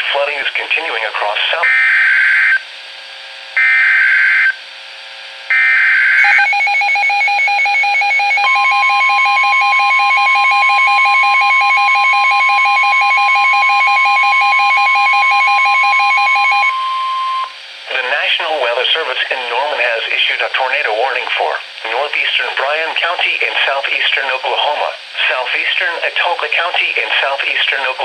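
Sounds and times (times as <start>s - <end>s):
two-tone beeping alarm: 3.6s - 4.6s, 5.5s - 17.6s
steady warning alert tone: 5.5s - 17.6s.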